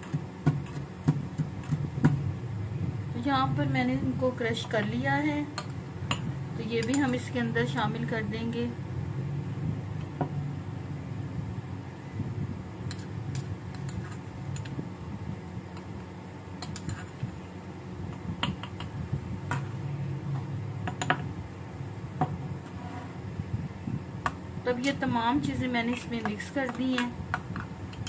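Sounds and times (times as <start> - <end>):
low steady hum: 0.0 - 28.0
metal spoon clinking and scraping: 6.8 - 7.3, 12.9 - 14.7, 16.6 - 17.2.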